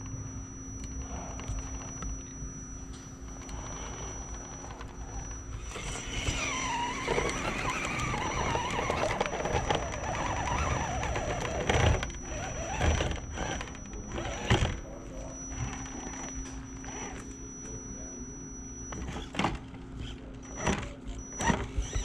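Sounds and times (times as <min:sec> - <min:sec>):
electric motor and gears whining: 0:00.0 - 0:22.0.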